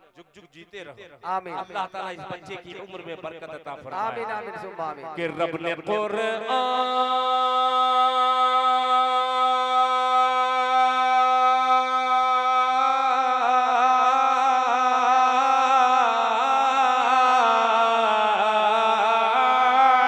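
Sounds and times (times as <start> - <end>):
man singing unaccompanied: 4.0 - 20.0.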